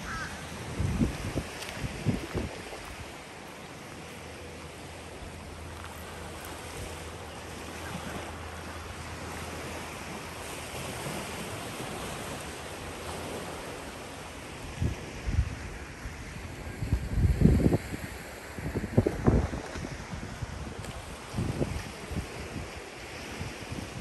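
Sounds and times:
wind on microphone: 0.0s - 3.3s, 14.6s - 24.0s
small waves washing on sand: 0.0s - 24.0s
footsteps on sand: 0.7s - 7.6s.

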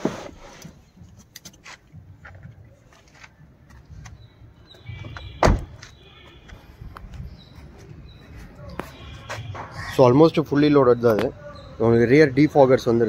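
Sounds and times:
car door shutting thud: 5.3s - 5.9s.

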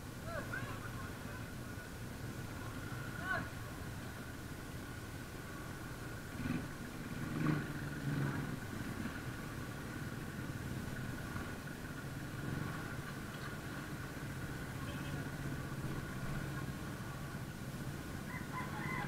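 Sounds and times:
motorcycle engine at low revs: 1.1s - 18.3s.

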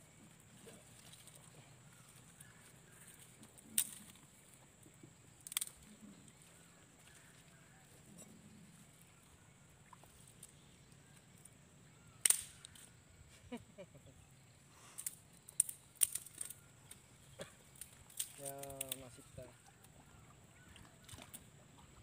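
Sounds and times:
wire-mesh trap clicking and rattling: 15.0s - 17.0s, 17.8s - 19.1s.

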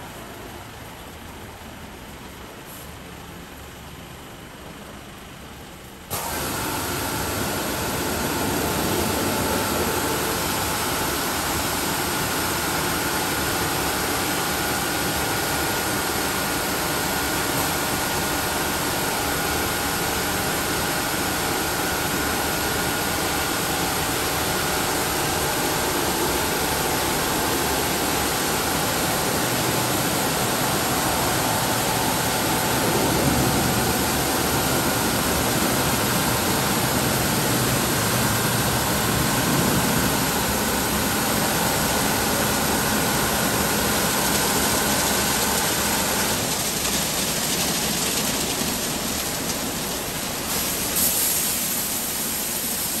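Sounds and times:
spray jets hissing: 43.0s - 53.0s.

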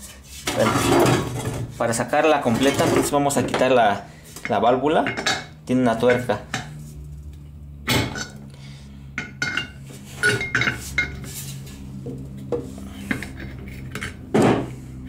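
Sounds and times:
metal tools clinking and clanking: 9.2s - 11.2s.

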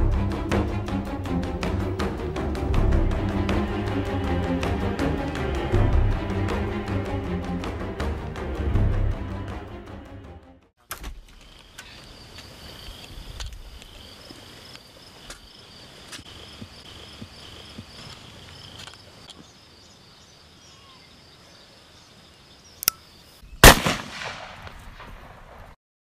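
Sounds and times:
crickets and insects trilling: 11.2s - 23.5s
gunshot with echo: 23.6s - 25.6s.

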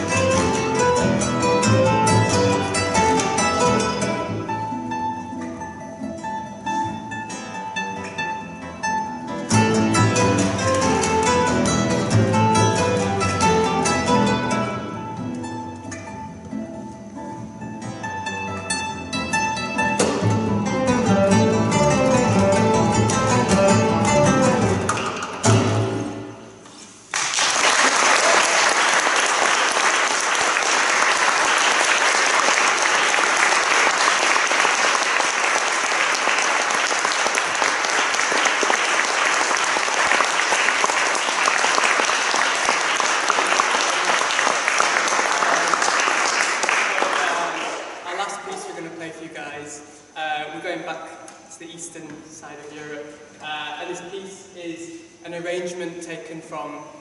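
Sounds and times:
double bass: 0.0s - 26.6s
classical guitars: 0.0s - 27.2s, 28.8s - 57.0s
audience applause: 27.1s - 48.0s.

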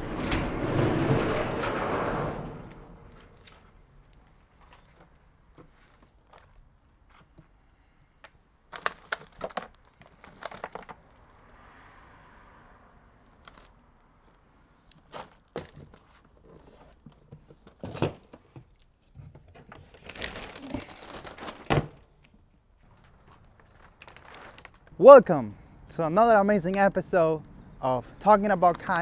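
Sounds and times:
plastic wrapping crinkling: 8.7s - 11.3s, 19.7s - 22.0s, 22.8s - 25.0s.

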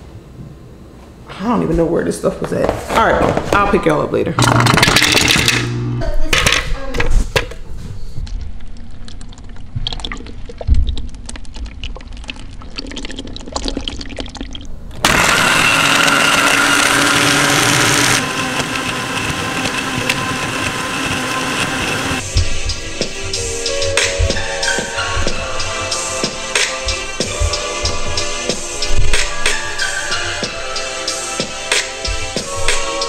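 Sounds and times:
blender whirring crushing ice: 4.4s - 6.0s, 15.0s - 22.2s
liquid pouring: 8.6s - 14.8s.

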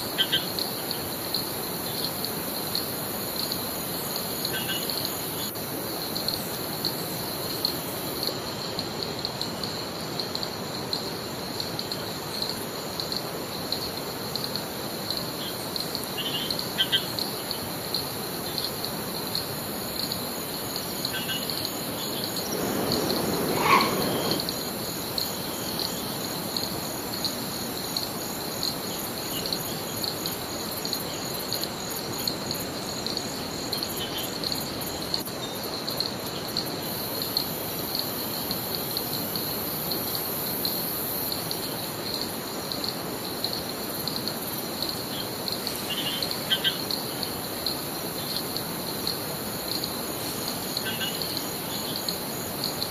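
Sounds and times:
insects chorus pulsing: 0.0s - 52.9s
river water rushing: 22.0s - 25.4s.

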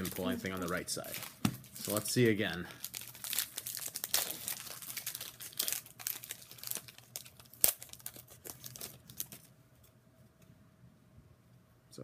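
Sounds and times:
foil wrapper crinkling: 0.0s - 9.5s.

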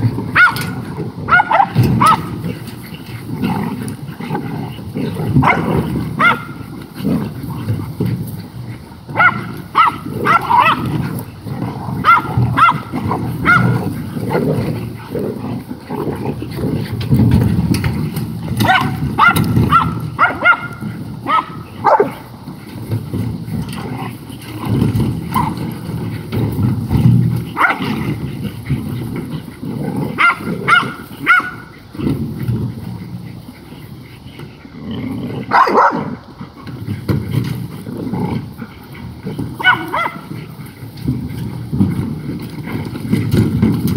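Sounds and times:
dogs yipping and whining: 0.0s - 3.3s, 16.4s - 34.8s, 38.8s - 41.1s
dogs growling: 0.0s - 43.9s.

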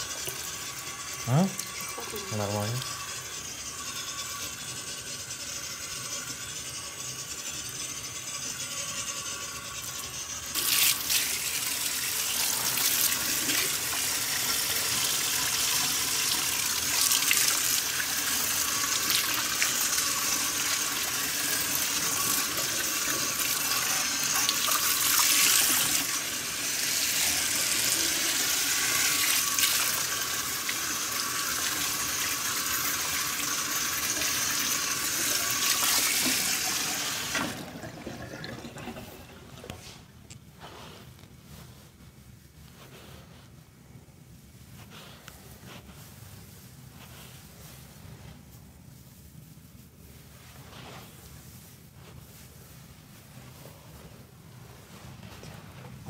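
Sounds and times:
tap water running into sink: 0.0s - 3.2s, 9.8s - 39.8s.

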